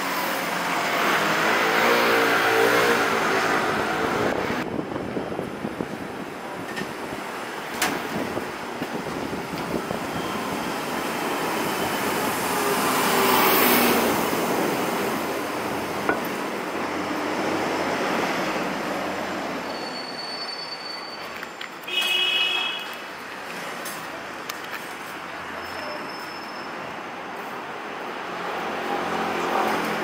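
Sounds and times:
street traffic: 0.0 - 30.0
faint high squeal: 19.6 - 21.7, 25.6 - 26.9.

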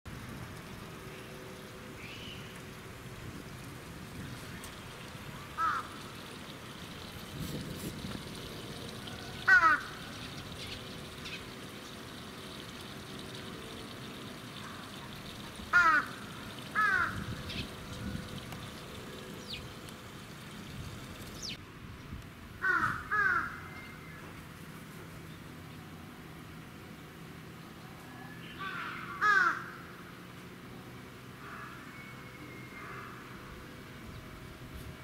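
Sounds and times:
crow cawing: 5.5 - 6.0, 9.4 - 10.0, 15.7 - 17.3, 22.6 - 23.7, 28.6 - 29.9, 31.4 - 31.9.

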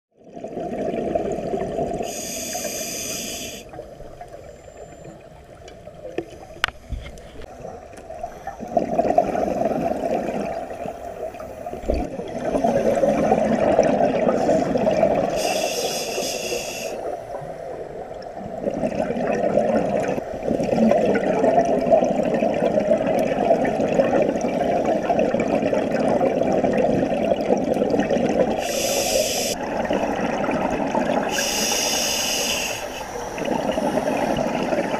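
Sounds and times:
exhaled air bubbling underwater: 0.2 - 34.9
regulator inhale hiss: 2.0 - 3.8, 15.3 - 17.7, 28.6 - 29.6, 31.3 - 34.7.

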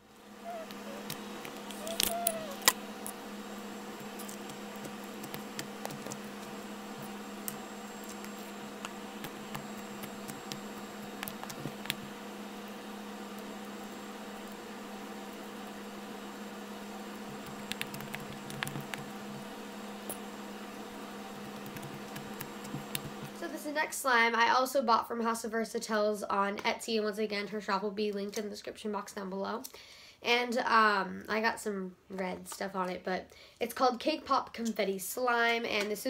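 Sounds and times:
steady hum and hiss: 0.0 - 36.0.

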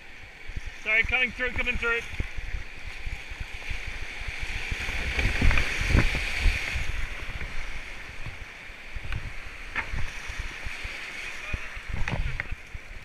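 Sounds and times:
white water rushing: 0.0 - 2.9
wind buffeting microphone: 0.0 - 13.0.

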